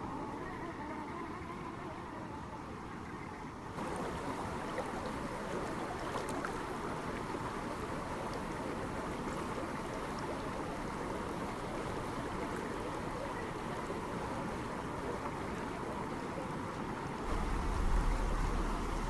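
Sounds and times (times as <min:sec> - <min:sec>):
rocky stream rushing: 0:03.7 - 0:19.0.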